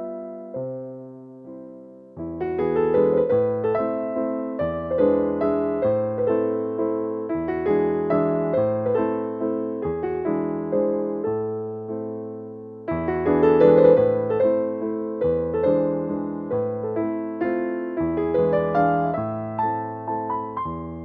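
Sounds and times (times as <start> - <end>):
electric piano melody: 0.0 - 21.0.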